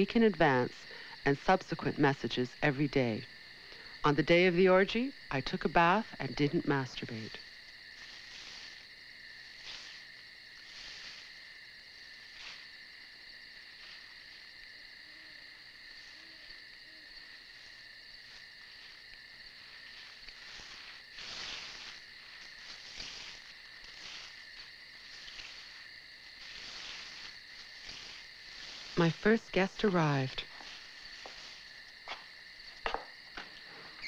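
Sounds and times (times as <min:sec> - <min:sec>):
night insects chirping: 0:00.0 - 0:34.0
rustles in dry leaves: 0:07.4 - 0:12.9, 0:15.9 - 0:32.6.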